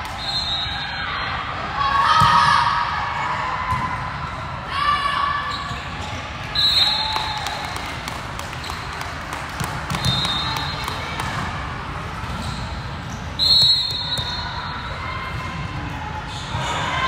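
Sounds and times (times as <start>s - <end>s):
ball bouncing on court floor: 9.4s - 11.5s.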